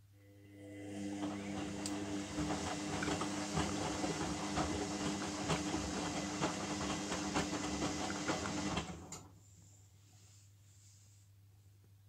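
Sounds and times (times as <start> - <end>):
washing machine motor hum: 0.2 - 9.4
water sloshing and splashing: 1.6 - 8.8.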